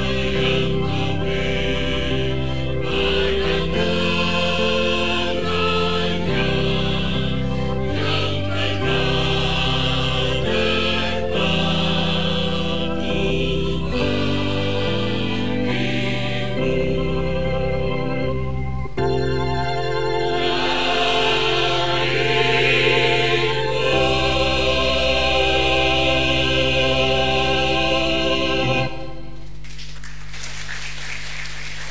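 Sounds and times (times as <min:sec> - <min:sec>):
choir singing: 0:00.0 - 0:18.1, 0:20.2 - 0:29.4
organ: 0:00.0 - 0:31.9
applause: 0:29.6 - 0:31.9.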